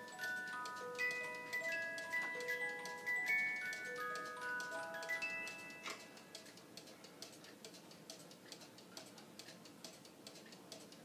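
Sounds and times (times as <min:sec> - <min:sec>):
music box playing: 0:00.0 - 0:06.6
clock ticking: 0:00.0 - 0:11.0.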